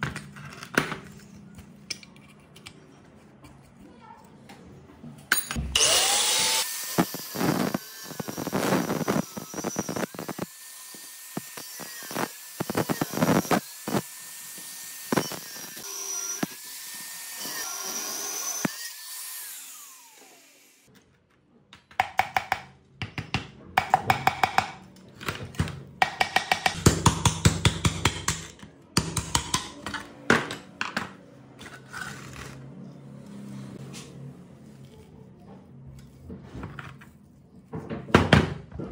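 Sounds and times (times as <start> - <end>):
hand tools knocking and scraping metal: 21.8 - 32.1.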